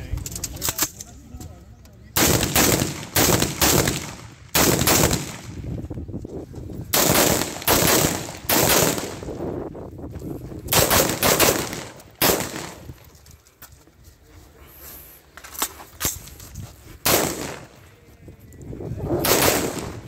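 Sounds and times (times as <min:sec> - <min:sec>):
rifle shots with echo: 0:02.2 - 0:05.6, 0:06.9 - 0:09.4, 0:10.7 - 0:12.9, 0:17.0 - 0:17.8, 0:19.2 - 0:20.0.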